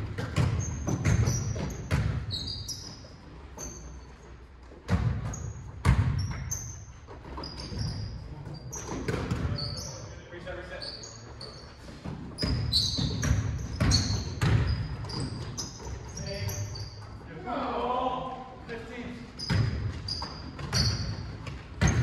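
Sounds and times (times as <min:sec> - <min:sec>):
basketball bouncing on hardwood: 0:00.1 - 0:02.3, 0:04.9 - 0:06.6, 0:12.3 - 0:15.6, 0:19.4 - 0:22.0
sneaker squeaks: 0:00.1 - 0:17.3, 0:19.1 - 0:22.0.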